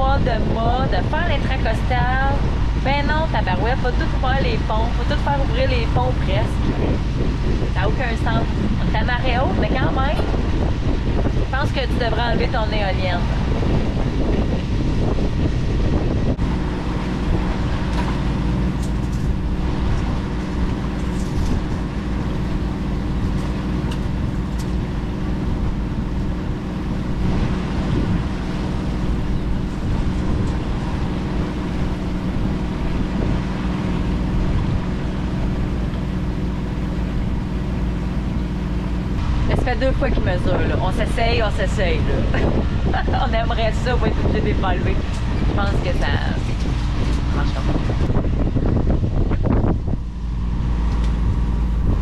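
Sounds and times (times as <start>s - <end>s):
boat engine running: 0.0s - 52.0s
wind buffeting microphone: 0.0s - 52.0s.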